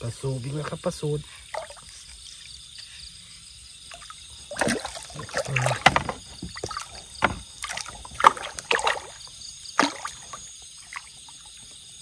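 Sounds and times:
water splashing and sloshing: 0.0 - 12.0
sharp knocks: 5.6 - 7.6.

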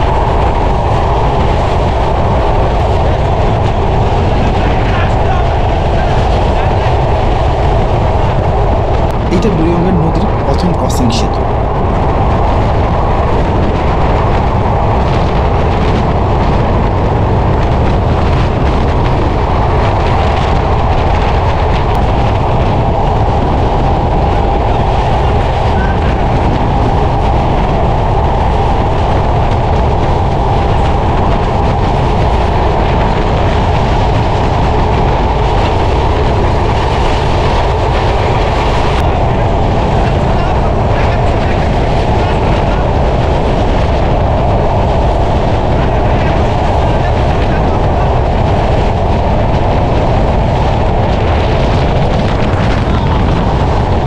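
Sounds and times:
wind rushing over microphone: 0.0 - 54.0
passenger train running: 1.6 - 12.3.

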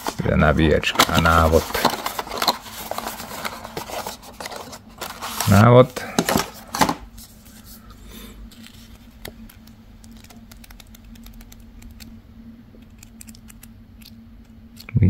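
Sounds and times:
paper pages flipping: 0.0 - 7.8, 8.5 - 12.2
booklet handling sound: 0.0 - 12.1
faint low hum: 0.0 - 15.0.

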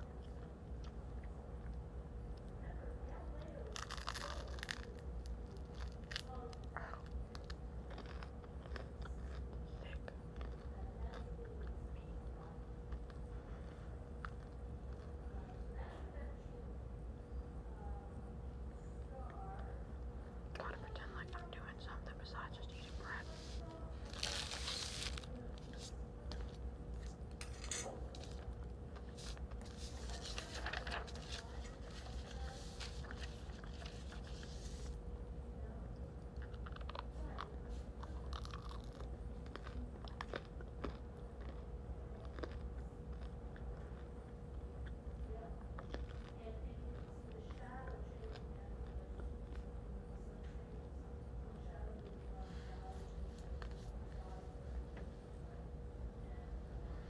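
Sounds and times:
chewing bread: 0.0 - 16.1, 23.1 - 52.3, 53.1 - 54.4
low room hum: 0.0 - 57.0.

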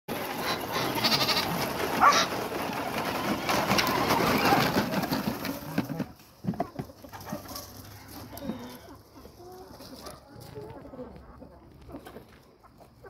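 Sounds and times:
wheels crunching over gravel: 0.1 - 13.0.

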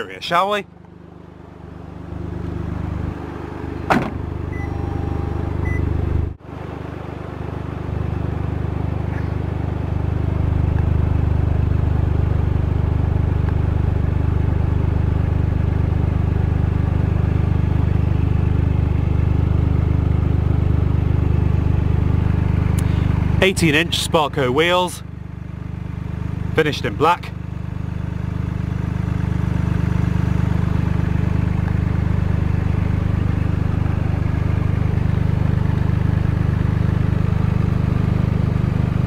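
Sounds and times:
car engine idling: 0.0 - 39.0
car door shutting: 3.8 - 5.9.

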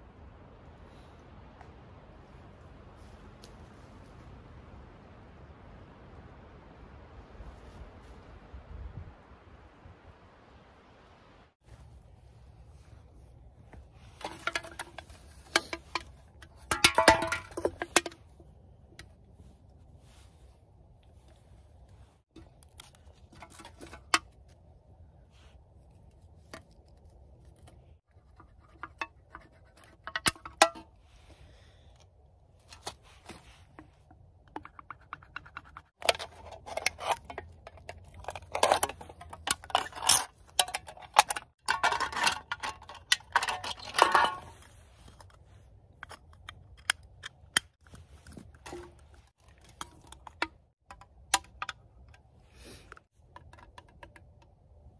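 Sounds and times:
aluminium cans clicking: 14.2 - 18.2, 34.5 - 44.5.

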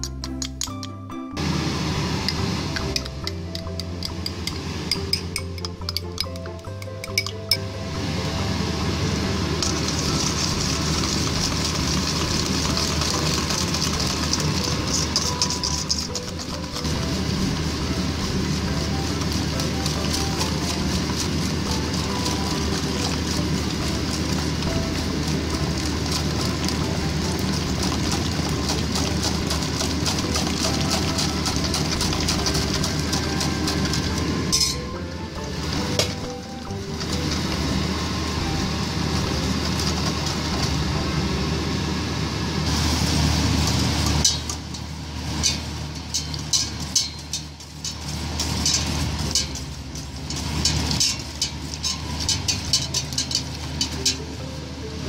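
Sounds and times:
whisk beating eggs in metal bowl: 9.6 - 41.0, 43.9 - 54.3.

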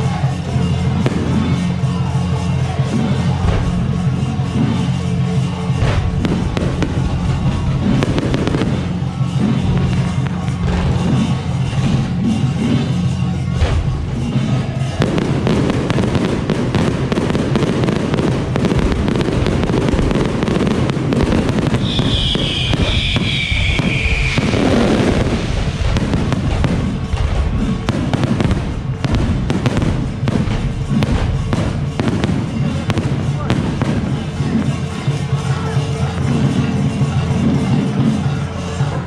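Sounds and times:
fireworks bangs and crackling: 0.0 - 39.0
firework whistle: 0.1 - 28.7.

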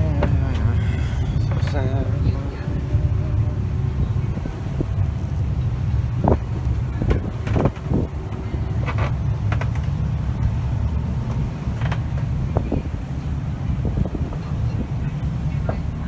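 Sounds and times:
wind rumbling on microphone: 0.0 - 16.0
sharp crackles and knocks: 6.2 - 12.8.

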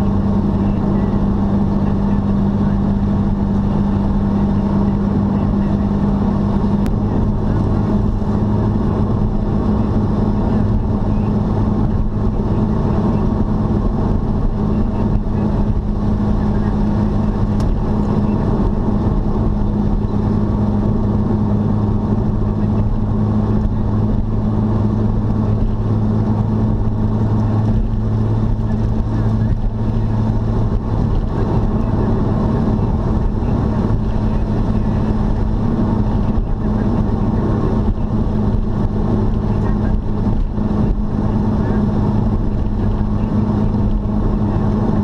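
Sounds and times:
car engine drone: 0.0 - 45.0
tyre and road noise: 0.0 - 45.0.

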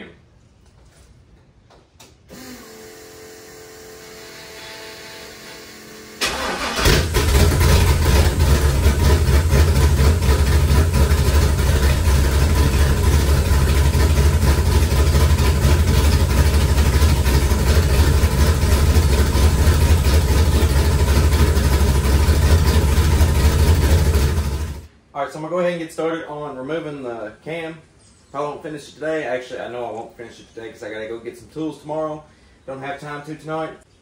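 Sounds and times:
engine cranking and starting: 6.2 - 24.9
engine idling loud: 6.3 - 24.9.

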